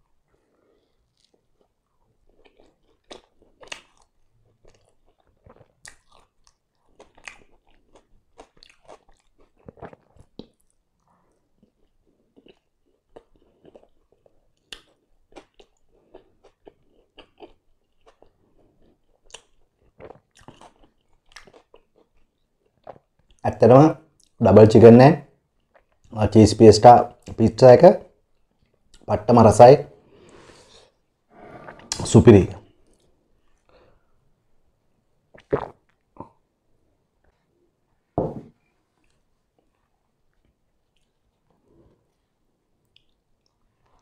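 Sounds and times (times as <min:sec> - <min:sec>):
chewing with mouth clicks: 0:00.8 - 0:23.4, 0:25.6 - 0:26.1, 0:39.0 - 0:41.6, 0:42.8 - 0:44.0.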